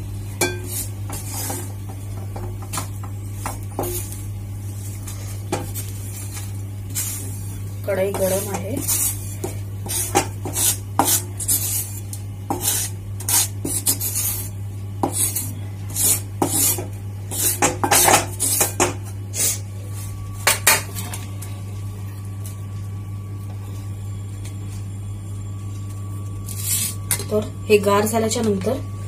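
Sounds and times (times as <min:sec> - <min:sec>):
steady low hum: 0:00.0 - 0:29.0
wooden spatula scraping a pan: 0:08.0 - 0:18.7.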